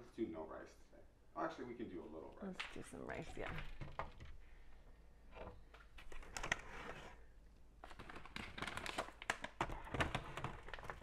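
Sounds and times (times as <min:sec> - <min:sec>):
plastic bag rustling: 0:07.8 - 0:11.0.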